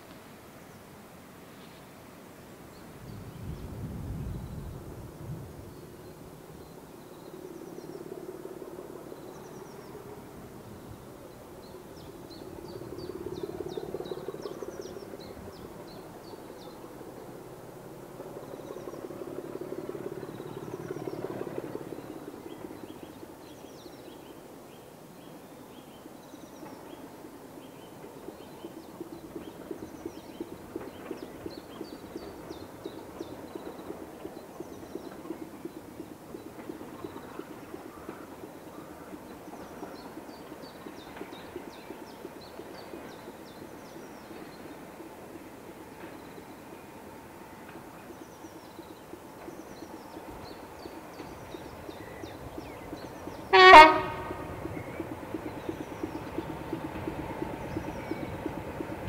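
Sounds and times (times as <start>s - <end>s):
diesel locomotive engine: 2.0s - 59.0s.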